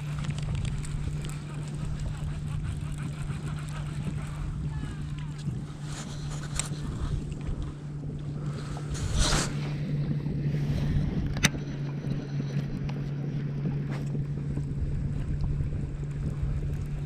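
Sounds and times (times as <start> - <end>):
boat motor humming: 0.0 - 17.0
brief swish: 8.9 - 9.7.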